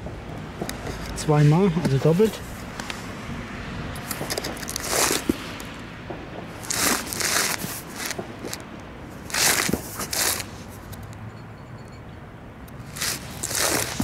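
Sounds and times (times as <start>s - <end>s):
cardboard box scraping against hand: 4.6s - 5.4s, 6.6s - 8.6s, 9.3s - 10.8s, 12.9s - 14.0s.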